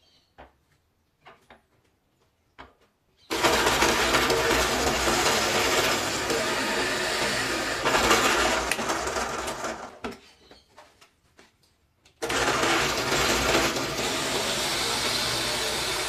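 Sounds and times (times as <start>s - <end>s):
drill press boring into wood: 3.3s - 10.1s, 12.2s - 16.0s.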